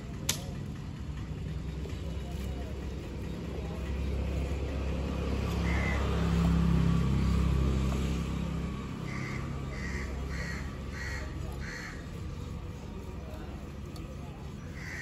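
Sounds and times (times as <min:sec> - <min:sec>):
passing vehicle engine rumble: 0:00.0 - 0:15.0
crow cawing: 0:05.6 - 0:06.1, 0:09.0 - 0:12.2, 0:14.7 - 0:15.0.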